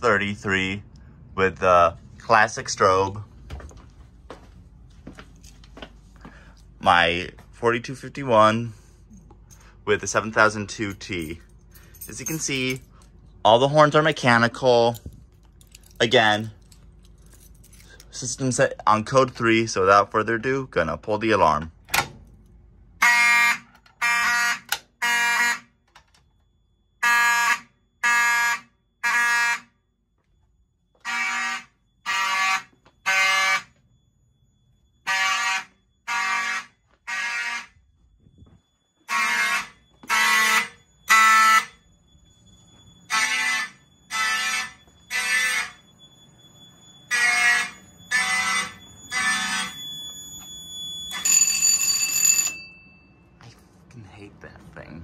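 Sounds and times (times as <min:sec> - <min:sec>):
fire alarm horns blasting: 0:00.0 - 0:53.9
buzz with steady high tone: 0:23.0 - 0:53.5.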